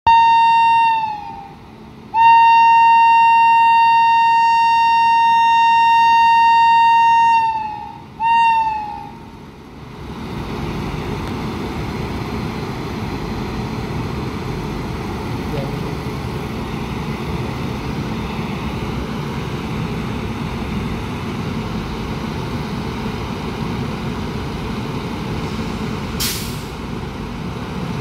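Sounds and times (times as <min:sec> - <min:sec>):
locomotive air horn blasts: 0:00.1 - 0:09.1
moving train rumble: 0:00.1 - 0:28.0.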